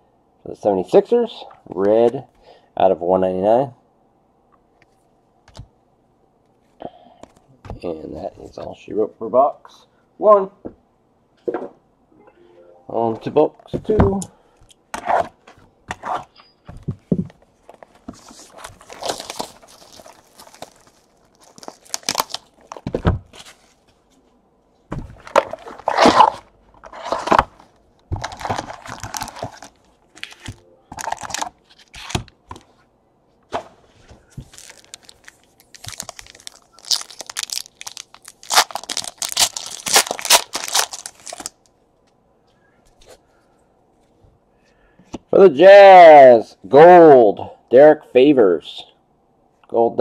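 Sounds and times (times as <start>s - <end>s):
foil packs tearing and crinkling: 18.4s - 22.9s, 25.3s - 27.6s, 28.2s - 32.3s, 34.5s - 41.6s.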